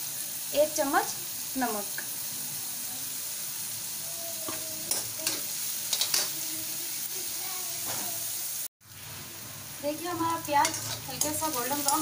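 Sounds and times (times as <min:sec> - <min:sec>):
onions sizzling in hot oil: 0:00.0 - 0:12.0
steel spoon scraping a pan: 0:04.5 - 0:06.4, 0:10.2 - 0:12.0.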